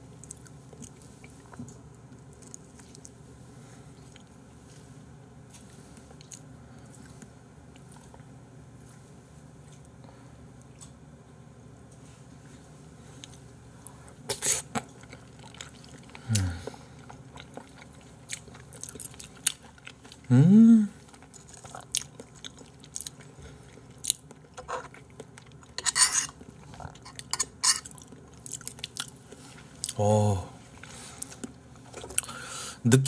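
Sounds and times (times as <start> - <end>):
person chewing: 5.5 - 9.0, 13.2 - 20.3, 21.0 - 30.0, 30.8 - 32.4
hummed voice sounds: 16.2 - 16.8, 20.3 - 21.0, 30.0 - 30.6.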